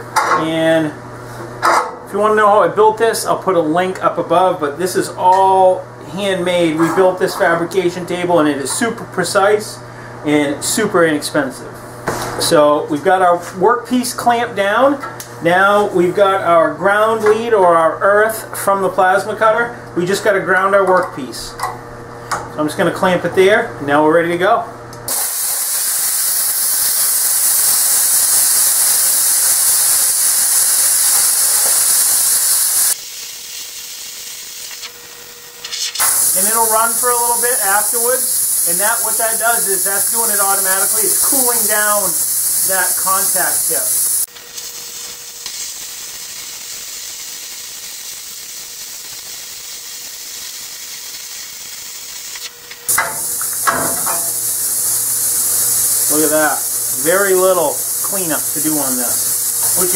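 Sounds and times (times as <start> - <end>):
plasma cutter hissing: 25.1 - 59.9.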